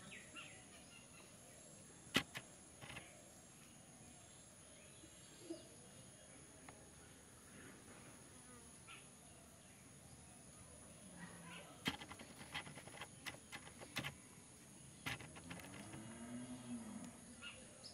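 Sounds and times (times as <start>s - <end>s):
faint insect buzzing: 6.6s - 9.8s, 10.6s - 17.6s
light clicks and taps: 11.8s - 14.2s.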